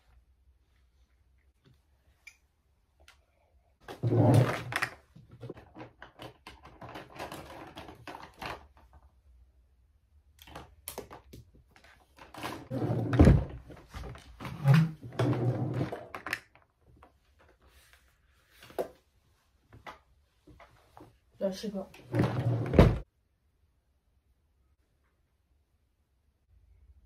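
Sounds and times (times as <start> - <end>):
makeup items clicking and rattling: 4.6 - 9.0.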